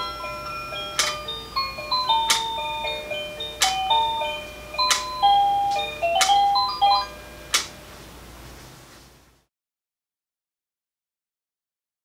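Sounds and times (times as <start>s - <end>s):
electronic chime melody: 0.0s - 7.5s.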